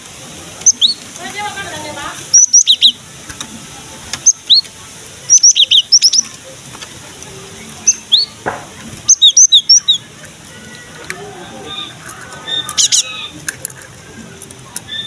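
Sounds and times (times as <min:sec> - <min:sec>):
bird calling short sharp notes: 0:07.8 - 0:10.1.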